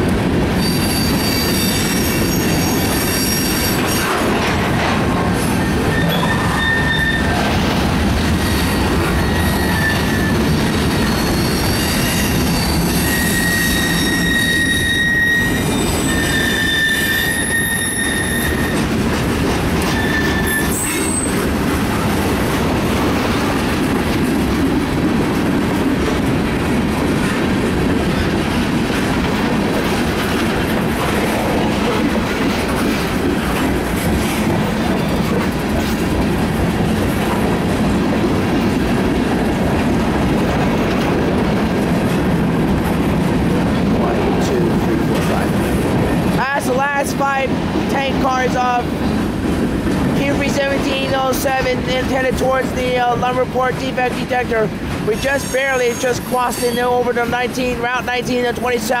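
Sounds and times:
train wheels rolling on rails: 0.0s - 59.0s
wheel flanges squealing: 0.6s - 4.1s, 5.4s - 7.6s, 8.2s - 19.0s, 19.8s - 21.5s.

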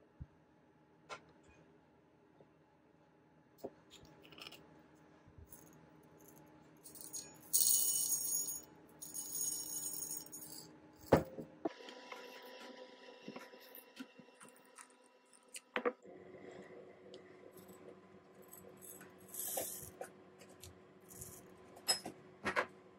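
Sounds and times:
coffee beans rattling into metal cup: 6.9s - 11.2s.

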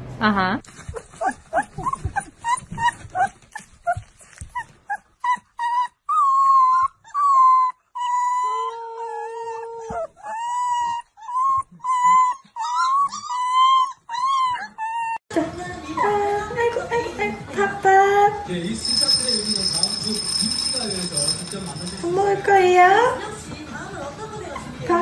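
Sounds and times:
puppy yipping and whimpering: 0.9s - 15.2s
puppy howling: 5.7s - 15.2s.

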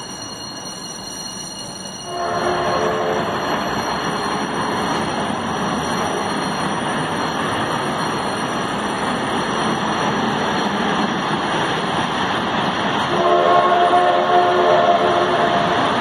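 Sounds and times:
steam locomotive chord whistle: 2.1s - 3.4s, 13.1s - 15.8s.

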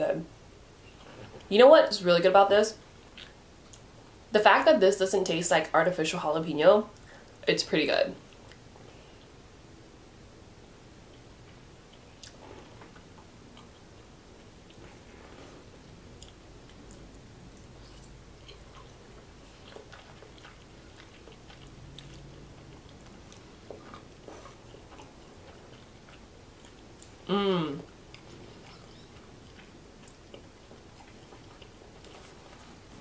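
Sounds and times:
faint chewing: 11.0s - 33.0s
person humming mmm: 27.2s - 27.9s.

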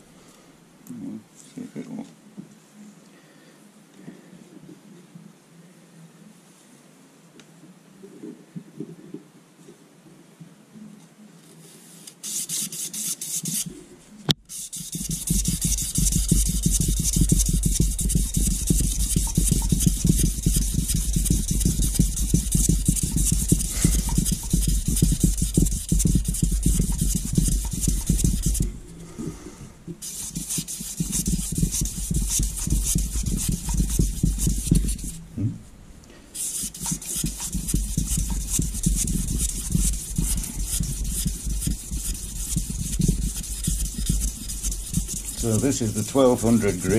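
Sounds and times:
abrasive paper rasping on metal: 12.2s - 13.7s, 14.5s - 28.7s, 30.0s - 35.3s, 36.4s - 46.9s.

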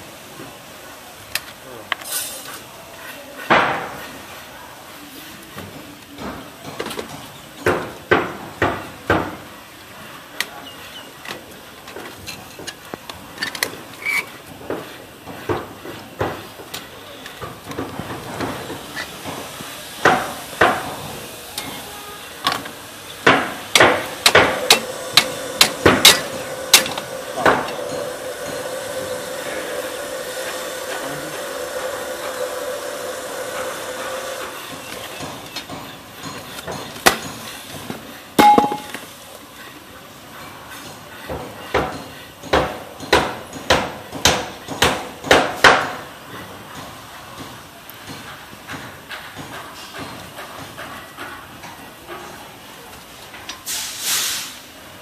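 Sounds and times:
steady machine hum: 23.3s - 35.2s
sharp hammer strikes: 38.4s - 39.0s.

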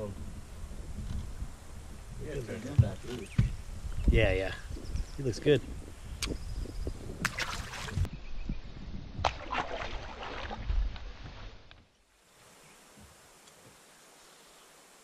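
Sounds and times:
wind rumble on microphone: 0.0s - 11.8s
water splashing: 7.2s - 8.1s, 9.2s - 11.4s.

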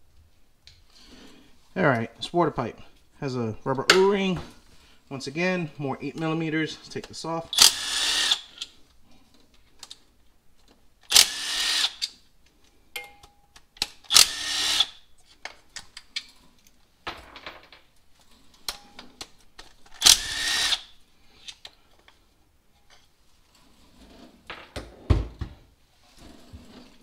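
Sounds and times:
power driver whirring: 7.5s - 8.6s, 11.1s - 12.0s, 14.1s - 15.0s, 20.0s - 20.9s
tool and parts clinking: 12.9s - 14.2s.

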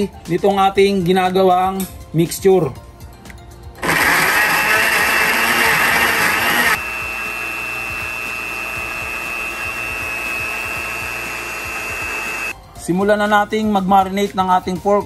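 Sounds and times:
blender motor running: 3.8s - 12.6s.

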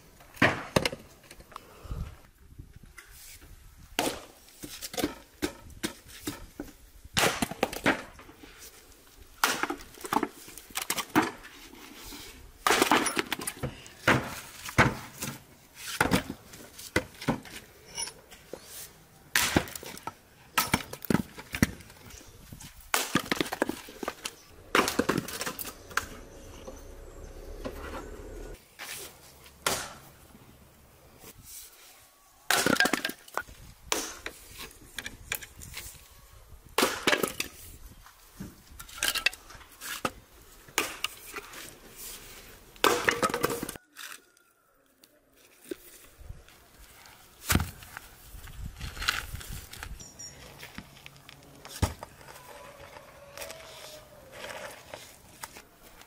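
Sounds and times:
axe chopping wood: 4.0s - 6.5s, 7.2s - 8.2s, 9.4s - 11.4s, 12.6s - 15.4s, 19.3s - 21.8s, 24.7s - 26.1s, 29.6s - 30.1s, 36.8s - 37.4s, 40.8s - 41.2s, 42.8s - 43.7s.

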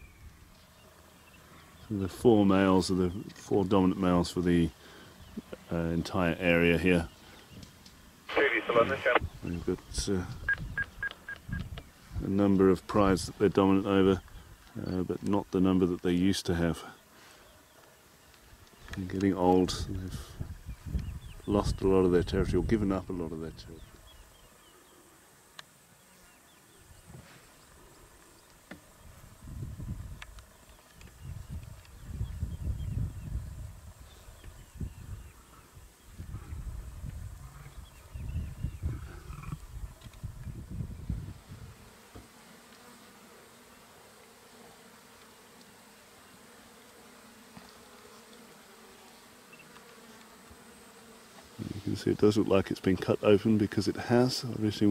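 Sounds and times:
flies buzzing: 4.7s - 9.4s, 10.3s - 14.8s, 23.8s - 54.2s
sharp clicks: 10.5s - 11.8s.

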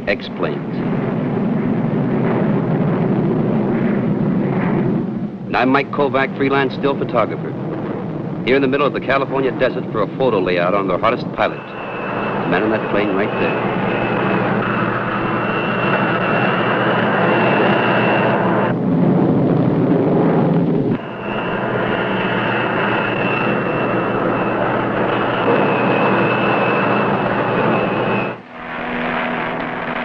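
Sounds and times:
high engine whine: 0.0s - 30.0s
jet engine roaring: 0.0s - 30.0s.

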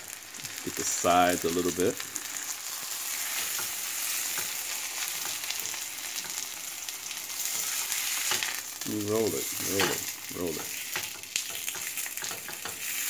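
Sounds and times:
fish sizzling in a frying pan: 0.0s - 13.0s.

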